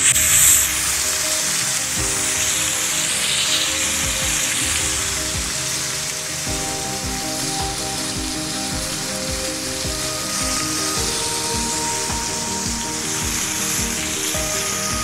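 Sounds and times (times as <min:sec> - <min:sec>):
background music with steady beat: 0:00.0 - 0:15.0
steak sizzling in oil: 0:00.0 - 0:15.0.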